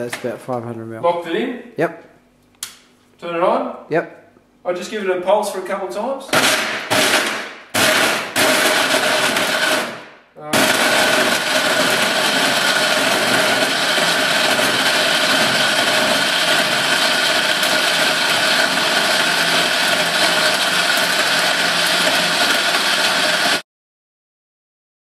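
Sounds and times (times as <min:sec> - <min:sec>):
blender motor whining: 0:06.4 - 0:23.6.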